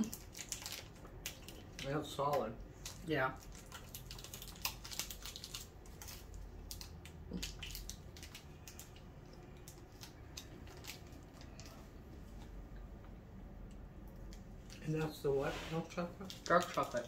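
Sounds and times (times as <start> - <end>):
people chewing: 0.0 - 2.0, 2.6 - 17.0
wrapper crackling: 0.0 - 12.0, 15.7 - 17.0.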